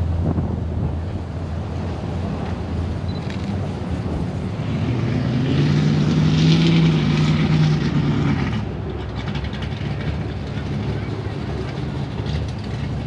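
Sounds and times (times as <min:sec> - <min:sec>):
vehicle engine passing by: 0:04.1 - 0:13.0.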